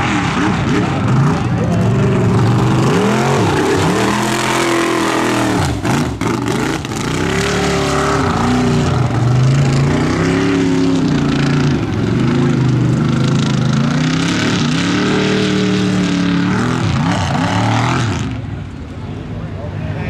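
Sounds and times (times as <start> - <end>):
truck engine revving hard: 0.0 - 18.7.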